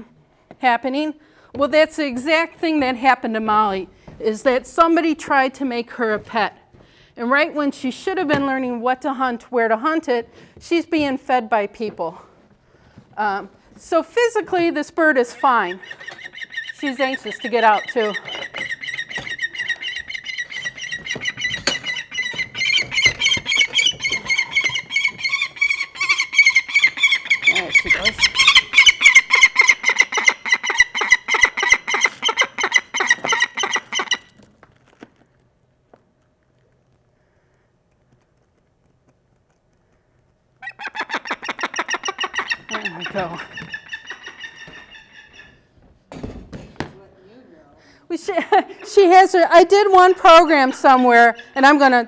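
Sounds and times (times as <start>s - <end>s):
falcon calling: 15.3s - 34.4s, 40.6s - 45.7s, 48.8s - 52.0s.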